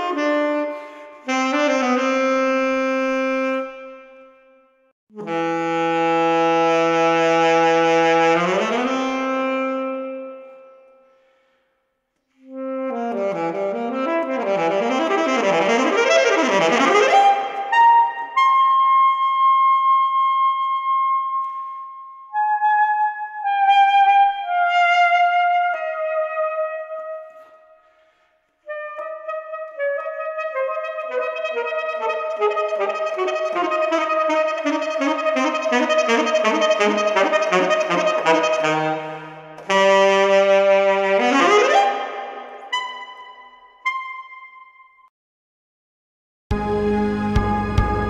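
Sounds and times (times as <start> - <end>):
solo alto saxophone: 0.0 - 11.2, 12.3 - 27.7, 28.6 - 44.8.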